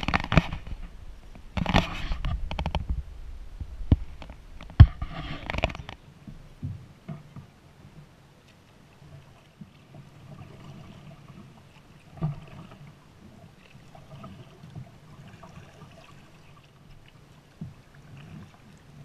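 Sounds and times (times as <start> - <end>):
faint water lapping: 0.0 - 19.0
paddle strokes splashing: 3.8 - 19.0.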